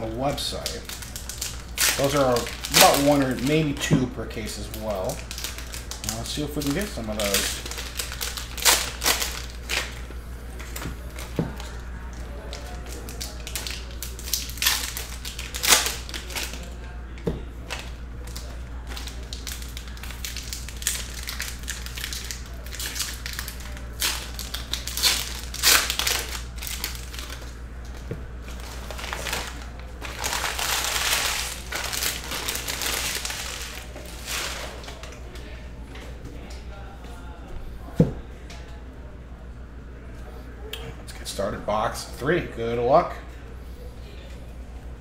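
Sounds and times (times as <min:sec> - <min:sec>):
foil wrappers crinkling: 0:00.0 - 0:35.6
steady low hum: 0:00.0 - 0:45.0.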